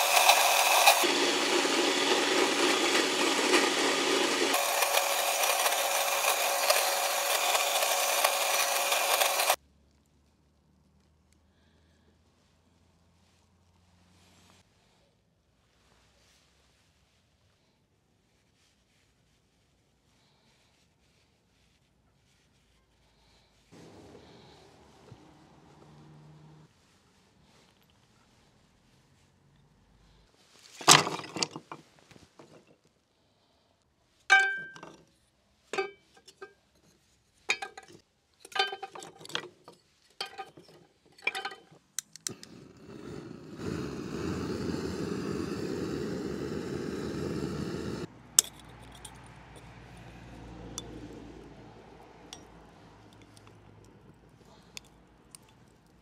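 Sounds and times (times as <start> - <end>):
glass and china clinking: 40.2 - 41.7, 48.4 - 49.7.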